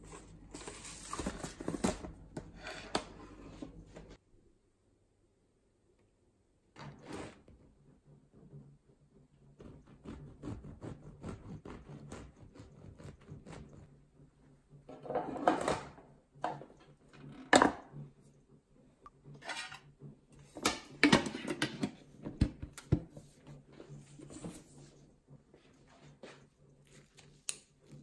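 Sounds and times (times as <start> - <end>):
bread knife sawing through loaf: 9.6 - 13.9.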